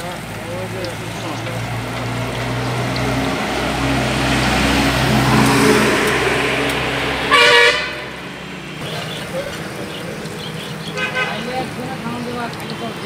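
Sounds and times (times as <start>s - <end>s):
oil sizzling deep-frying: 0.0s - 13.0s
street traffic hum: 0.0s - 13.0s
vehicle horn toot: 7.2s - 8.2s, 11.0s - 11.6s.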